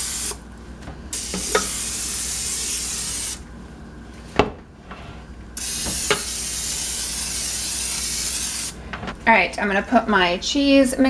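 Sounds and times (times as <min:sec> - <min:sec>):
aerosol spray hissing: 0:00.0 - 0:00.4, 0:01.2 - 0:03.4, 0:05.6 - 0:08.8.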